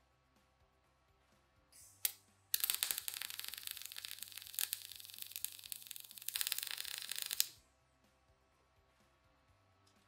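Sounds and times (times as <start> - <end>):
welding arc crackling: 2.6 - 7.5.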